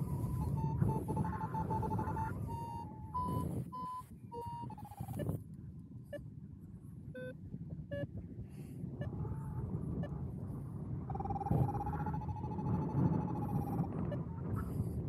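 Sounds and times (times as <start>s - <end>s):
wind rush: 0.0s - 3.8s
variometer short beeps: 0.0s - 5.4s, 7.2s - 8.1s.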